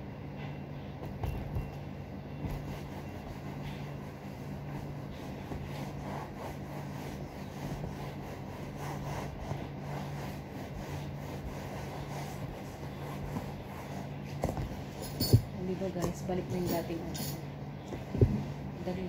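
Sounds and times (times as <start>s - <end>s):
cloth rubbing leather sofa: 2.4s - 16.4s.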